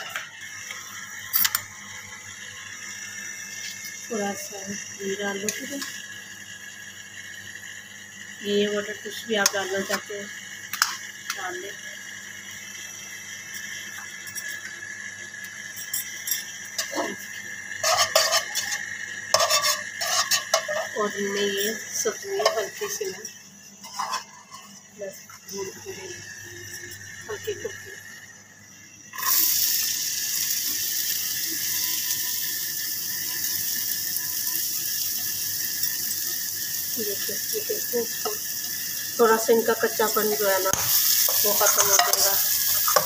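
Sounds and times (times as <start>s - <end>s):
vegetables sizzling in a wok: 0.0s - 43.0s
spatula scraping a wok: 17.8s - 21.1s, 23.8s - 24.8s, 39.8s - 43.0s.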